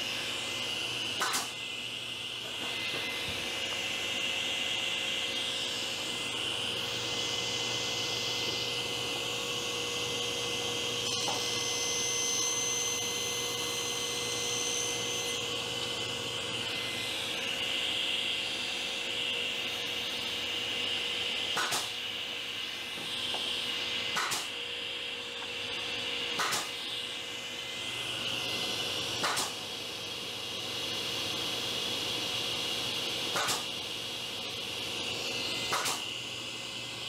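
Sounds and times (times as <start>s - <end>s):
table saw running: 0.0s - 37.0s
sharp click: 1.2s - 1.6s, 21.6s - 21.9s, 24.1s - 24.5s, 26.4s - 26.8s, 29.2s - 29.6s, 33.4s - 33.7s, 35.7s - 36.0s.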